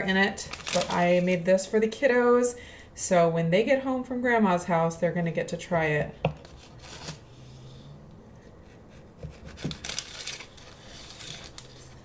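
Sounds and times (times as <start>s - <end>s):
knife cutting through bread: 8.6s - 11.9s.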